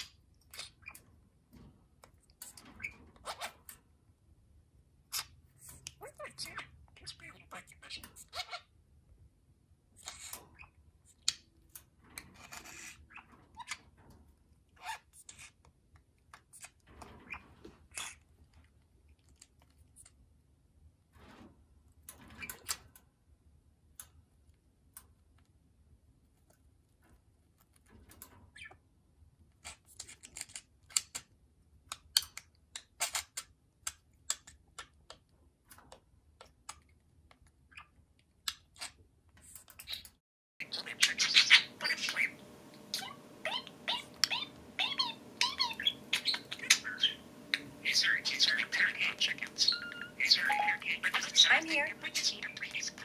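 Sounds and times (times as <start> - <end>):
bird beak scraping wooden toy: 10.0 - 10.5, 12.1 - 13.8, 40.6 - 53.0.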